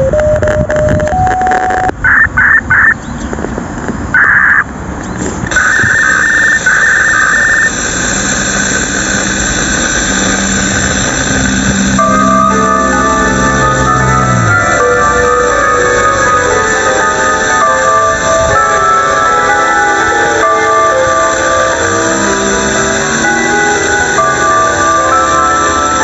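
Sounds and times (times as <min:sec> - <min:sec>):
held tones: 0:05.5 - 0:26.0
distant loudspeaker chime melody: 0:11.4 - 0:26.0.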